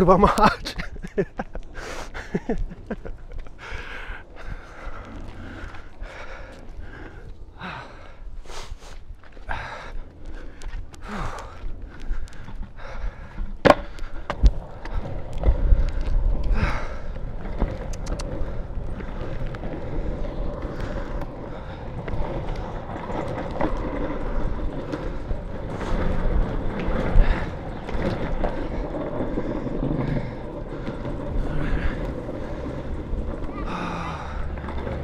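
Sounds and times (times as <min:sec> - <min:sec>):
skateboard wheels rolling on pavement: 0:00.0 - 0:35.0
sharp clicks: 0:17.8 - 0:18.4.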